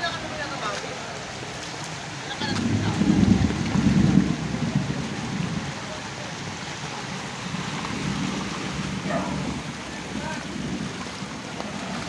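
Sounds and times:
floodwater rushing and splashing: 0:00.0 - 0:12.0
heavy low rumble: 0:02.4 - 0:06.0.

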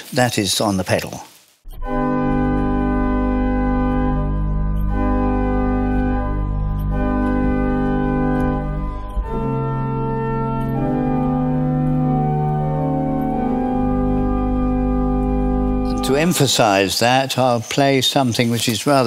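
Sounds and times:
deep organ pedal bass note: 0:01.7 - 0:17.6
pipe organ chords: 0:01.7 - 0:19.0.

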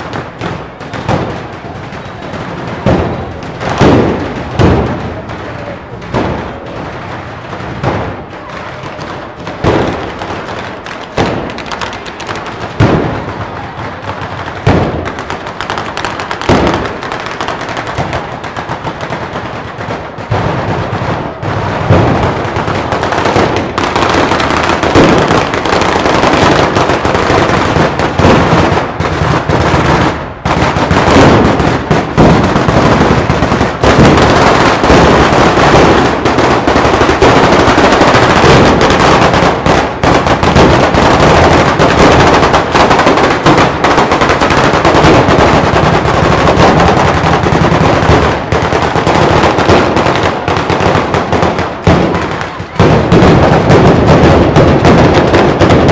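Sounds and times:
firecrackers banging: 0:00.0 - 0:55.9.

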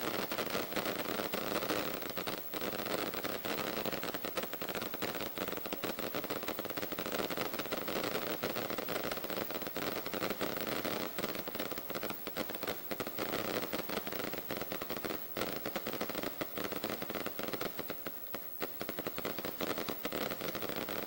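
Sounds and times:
firecrackers crackling: 0:00.0 - 0:21.0.

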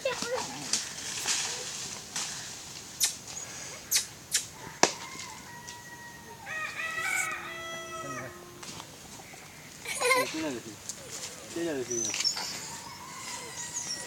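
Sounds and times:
crunching of dry leaves underfoot: 0:00.0 - 0:03.5, 0:04.6 - 0:14.0
sharp snap: 0:03.0 - 0:03.2, 0:03.9 - 0:05.0
rooster crowing: 0:04.6 - 0:08.8, 0:12.4 - 0:14.0.

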